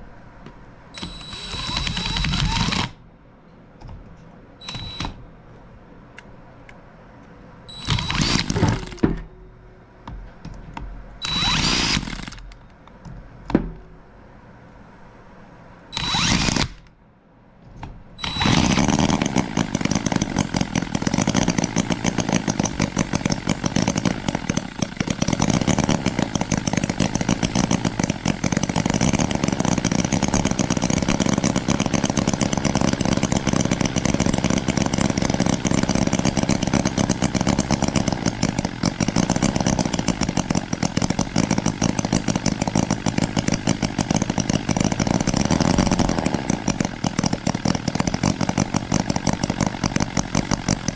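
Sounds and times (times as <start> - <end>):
model engine running: 1.0 - 3.0, 7.8 - 9.0, 11.2 - 12.4, 16.0 - 16.8, 18.2 - 50.9
starting drill spinning: 1.0 - 3.0, 7.8 - 9.0, 11.2 - 12.5, 16.0 - 16.9, 18.2 - 50.9.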